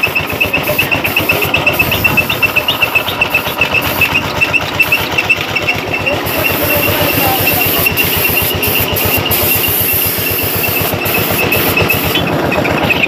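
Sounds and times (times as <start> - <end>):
high repeating tick: 0.0 - 13.0
motor running with pulsing beat: 0.0 - 13.0
high hiss: 6.1 - 12.3.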